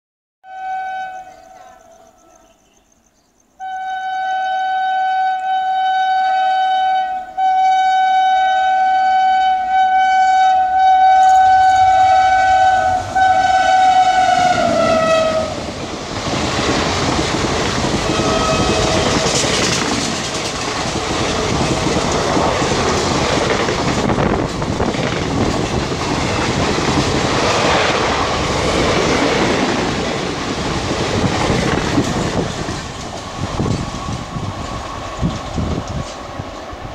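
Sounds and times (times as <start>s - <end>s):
locomotive horn blast: 0.4s - 2.1s, 3.6s - 15.7s, 18.0s - 19.7s
train coaches rushing past: 11.1s - 36.9s
wheels clattering over rail joints: 15.6s - 36.3s.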